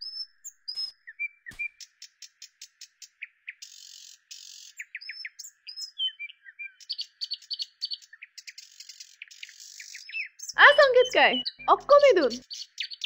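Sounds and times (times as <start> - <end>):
birds chirping: 0.0 - 13.0
buzzy bird notes: 10.6 - 12.4.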